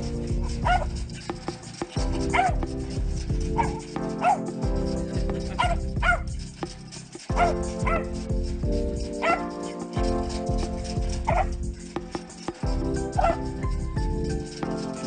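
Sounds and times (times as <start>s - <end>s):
background music: 0.0s - 15.0s
dog yipping: 0.4s - 1.0s, 2.1s - 2.7s, 3.5s - 4.5s, 5.3s - 6.3s, 7.3s - 8.1s, 9.1s - 9.6s, 10.2s - 11.6s, 13.2s - 13.6s.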